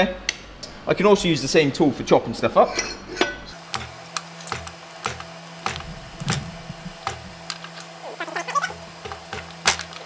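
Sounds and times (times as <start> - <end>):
steady low hum: 0.1 - 9.6
squeaky wavering sounds: 8.0 - 8.8.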